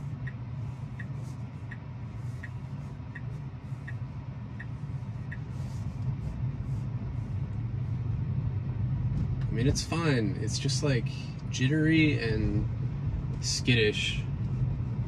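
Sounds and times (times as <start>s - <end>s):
turn signal ticking: 0.0s - 6.4s
road and tyre rumble in car: 0.0s - 15.0s.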